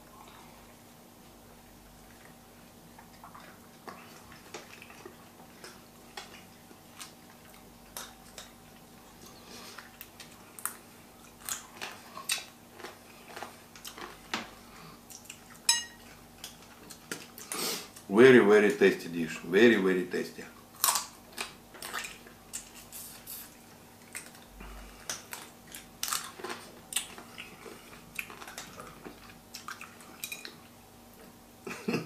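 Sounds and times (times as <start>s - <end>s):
ringing clink of glass: 15.7s - 16.0s
crayfish shells cracking: 20.8s - 22.8s.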